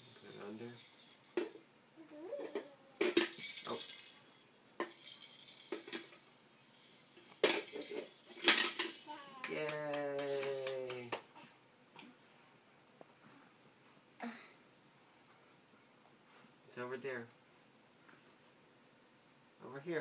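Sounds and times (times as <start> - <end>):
plastic toy rings rattling: 0.0 - 1.7, 2.4 - 9.5.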